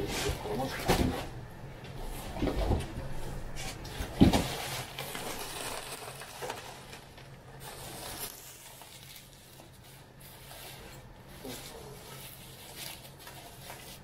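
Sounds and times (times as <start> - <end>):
bubble wrap rustling: 3.7 - 14.0.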